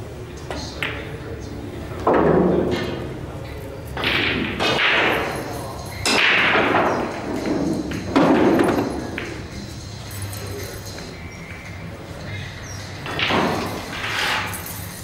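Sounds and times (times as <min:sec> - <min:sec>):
loud knocks with echoing rattle: 0:02.0 - 0:02.9, 0:04.0 - 0:09.4, 0:13.0 - 0:13.9.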